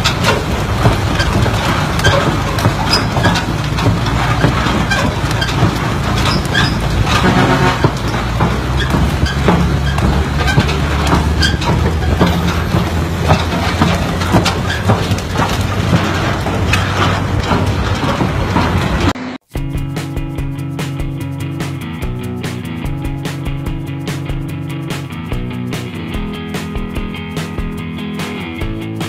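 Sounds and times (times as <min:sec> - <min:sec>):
truck engine hum: 0:00.0 - 0:28.0
road noise: 0:00.0 - 0:29.0
trailer knocks and rattles: 0:00.0 - 0:29.0.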